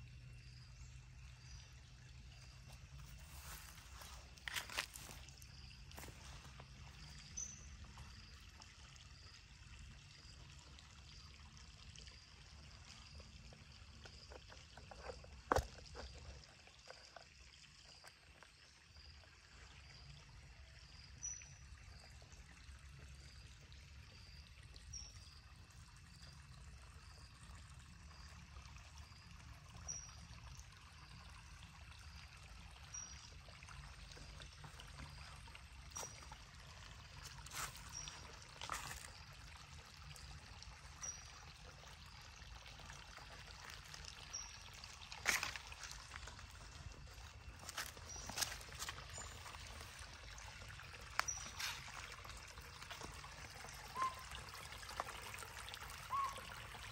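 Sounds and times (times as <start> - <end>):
stream trickling: 0.0 - 56.9
soft high chirp: 53.9 - 54.4.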